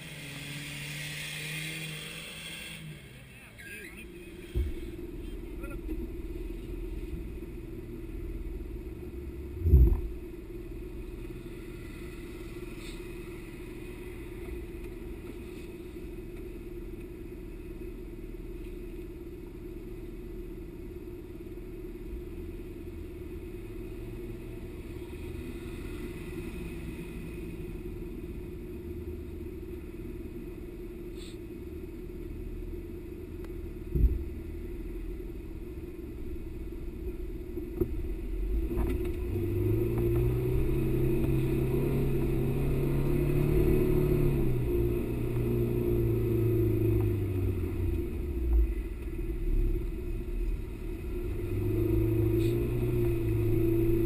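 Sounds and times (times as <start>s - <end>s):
vehicle engine rumbling: 0.0s - 54.0s
loud low thumps: 9.6s - 10.2s.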